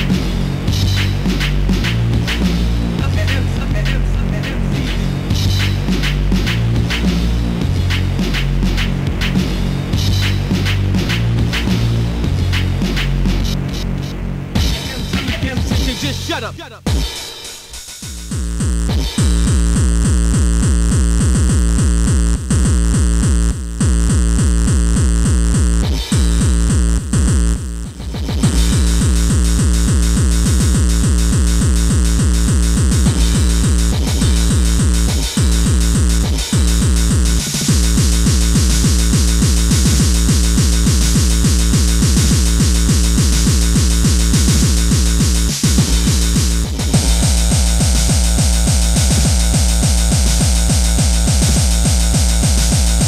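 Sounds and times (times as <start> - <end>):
harsh noisy synth: 0.0 - 17.3, 18.1 - 53.0
hardcore techno music: 0.0 - 53.0
pounding kick drum: 14.6 - 17.3, 18.0 - 53.0.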